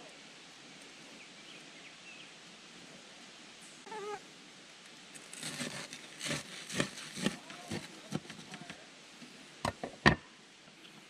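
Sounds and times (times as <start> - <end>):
wavering mewing call: 3.9 - 4.2
knife scraping bread on board: 5.3 - 8.6.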